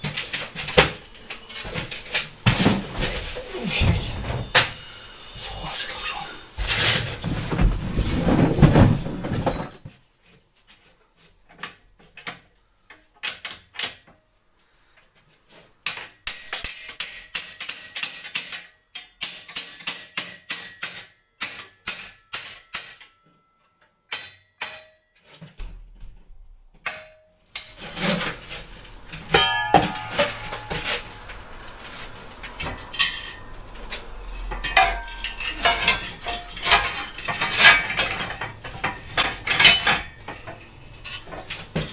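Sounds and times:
metal props clanking: 0:00.0 - 0:04.8, 0:27.5 - 0:41.9.

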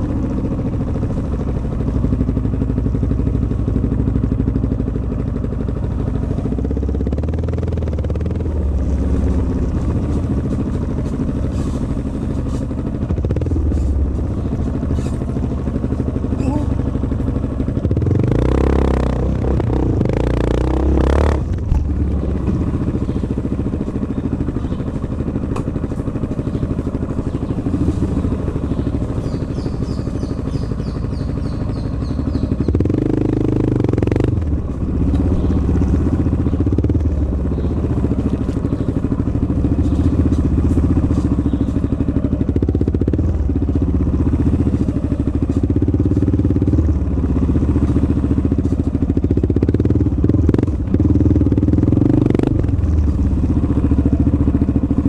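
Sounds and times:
motorcycle engine rumbling: 0:00.0 - 0:55.0.

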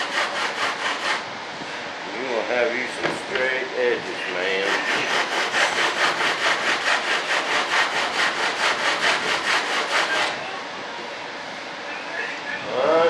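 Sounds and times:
sandpaper rubbing back and forth: 0:00.0 - 0:01.2, 0:04.4 - 0:10.4.

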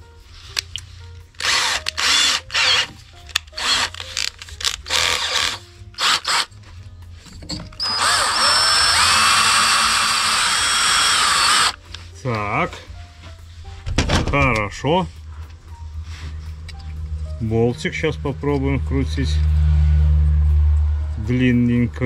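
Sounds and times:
electric drill running: 0:01.4 - 0:06.5, 0:07.8 - 0:11.8.

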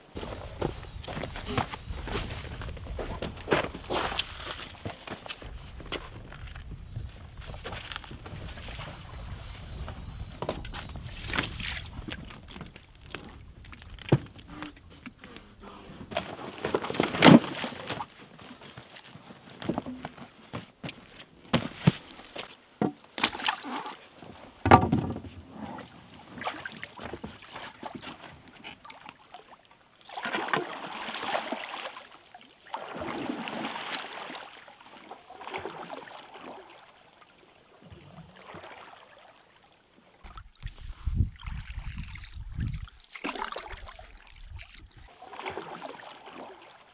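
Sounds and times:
water sloshing and splashing: 0:00.1 - 0:20.4, 0:21.6 - 0:46.9
paddle strokes in water: 0:21.6 - 0:46.9.

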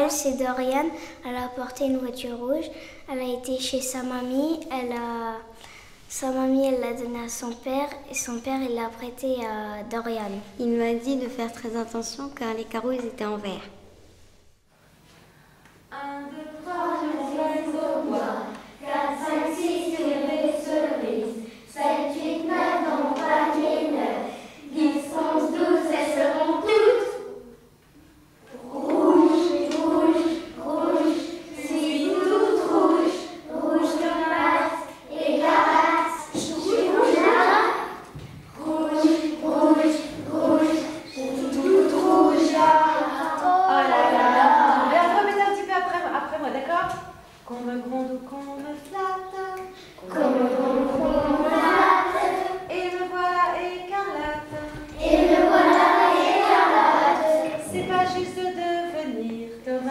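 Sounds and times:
children singing in unison: 0:16.6 - 0:27.1, 0:28.5 - 0:45.0, 0:50.0 - 0:53.0, 0:54.0 - 0:58.6.

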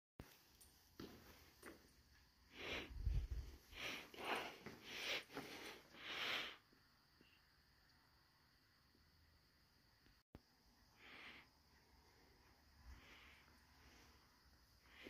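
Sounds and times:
person sniffing and breathing: 0:02.4 - 0:06.7, 0:10.8 - 0:15.0.

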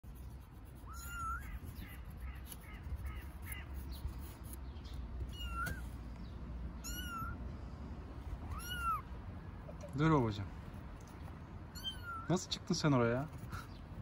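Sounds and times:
kitten meowing: 0:00.8 - 0:02.4, 0:05.2 - 0:05.9, 0:06.8 - 0:07.4, 0:08.4 - 0:09.8, 0:11.7 - 0:12.3.

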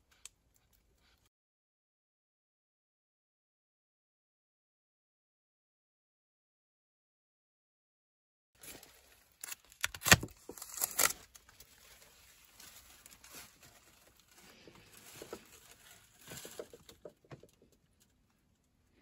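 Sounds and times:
faint rustling: 0:10.4 - 0:18.1.

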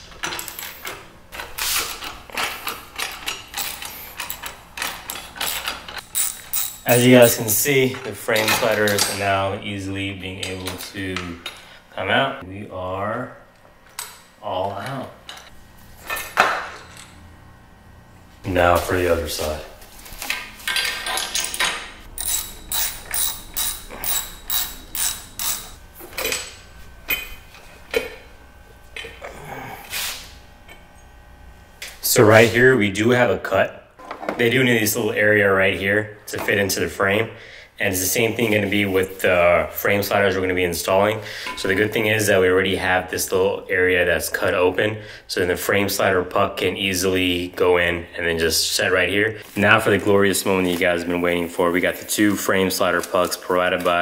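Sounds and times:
ratchet wrench clicking: 0:03.5 - 0:07.4, 0:22.2 - 0:25.8
socket wrench ratchet clicking: 0:22.2 - 0:25.8.

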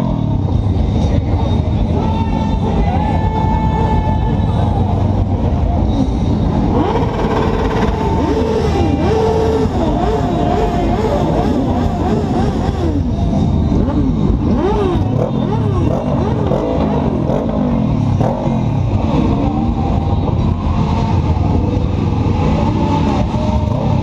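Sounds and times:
engines idling drone: 0:00.0 - 0:24.0
motorcycle engines revving: 0:00.0 - 0:24.0.

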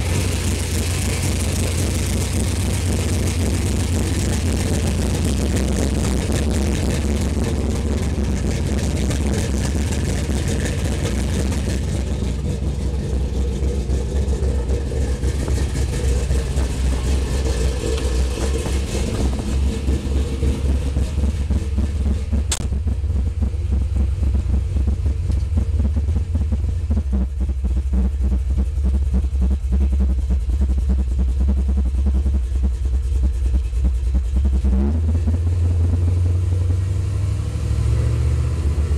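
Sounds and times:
pickup engine idling: 0:00.0 - 0:38.9.

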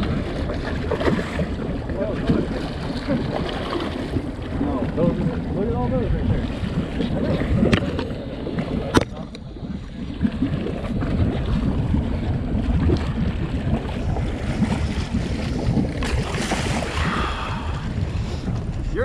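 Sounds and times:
water sloshing against boat hull: 0:00.0 - 0:19.0
wind buffeting microphone: 0:00.0 - 0:19.0.

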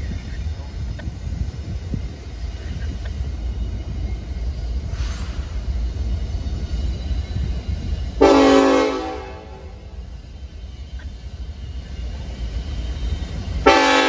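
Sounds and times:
diesel locomotive rumble: 0:00.0 - 0:14.0
locomotive air horn chord: 0:08.2 - 0:09.8, 0:13.6 - 0:14.0.

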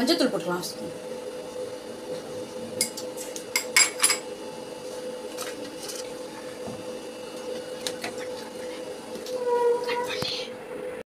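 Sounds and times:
utensils clinking on metal pots: 0:02.8 - 0:04.3.

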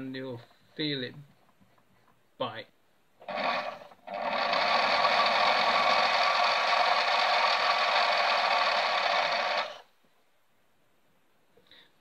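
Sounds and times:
small lathe cutting metal: 0:03.2 - 0:09.8.

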